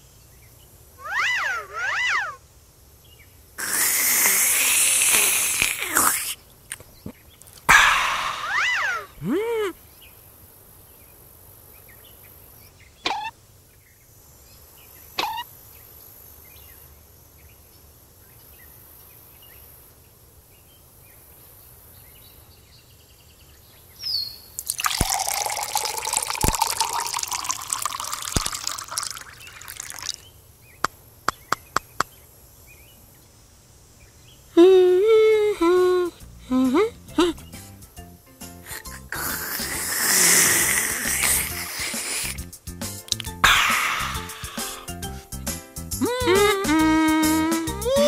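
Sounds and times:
milk pouring into a glass: 0:24.6 - 0:30.2
sharp clicks: 0:43.0 - 0:43.8.

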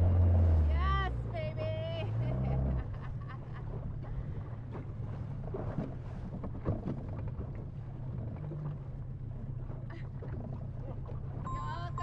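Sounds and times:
water splashing against boat hull: 0:00.0 - 0:12.0
wind rumbling on microphone: 0:02.5 - 0:12.0.

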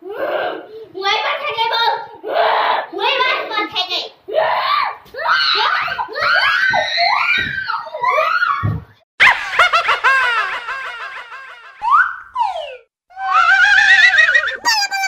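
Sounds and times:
girls laughing and shrieking: 0:04.3 - 0:15.0
loud cackling laugh: 0:09.2 - 0:11.9, 0:13.4 - 0:15.0.

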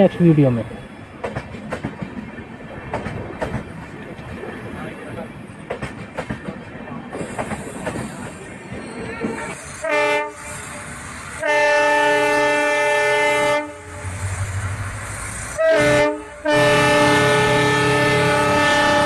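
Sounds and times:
locomotive air horn blasts: 0:09.4 - 0:10.7, 0:11.4 - 0:14.1, 0:15.6 - 0:19.0.

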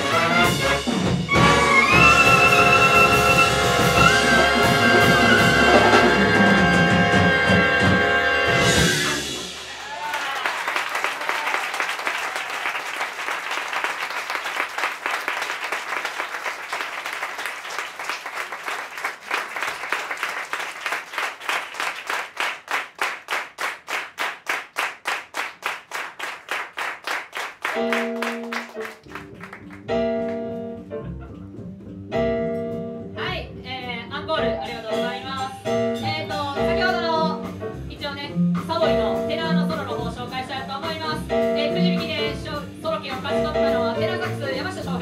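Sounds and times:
big band horns playing chords: 0:00.0 - 0:09.8
audience applauding: 0:09.4 - 0:30.4
rhythmic clapping in time: 0:09.6 - 0:30.7.

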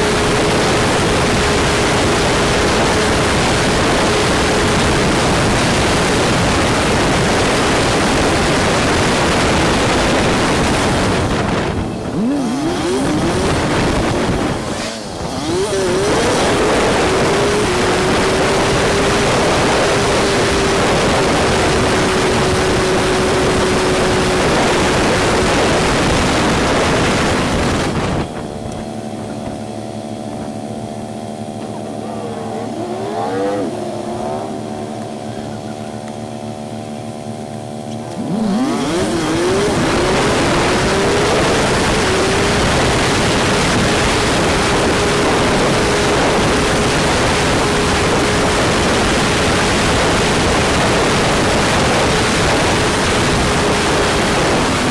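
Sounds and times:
wind noise: 0:00.0 - 0:31.6, 0:38.1 - 0:54.9
motorcycle engine: 0:00.0 - 0:54.9.

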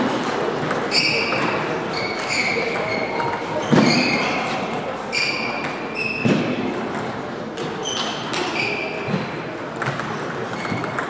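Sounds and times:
shoes squeaking on floor: 0:00.9 - 0:06.6, 0:07.6 - 0:09.4, 0:10.5 - 0:11.0.

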